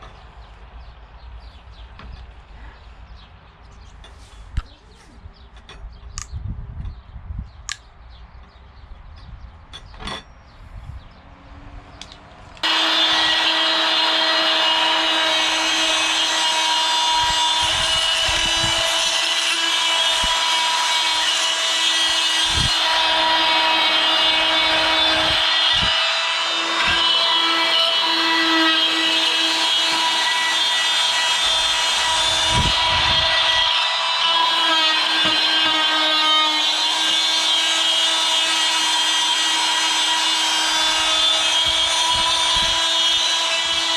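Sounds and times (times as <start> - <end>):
oscillating multi-tool buzzing on wood: 12.6 - 43.9.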